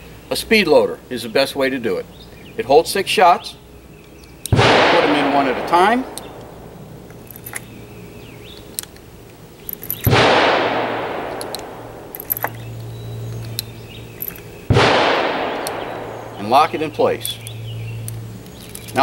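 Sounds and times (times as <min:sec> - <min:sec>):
gunshots echoing: 0:04.5 - 0:07.0, 0:10.0 - 0:12.1, 0:14.7 - 0:16.9.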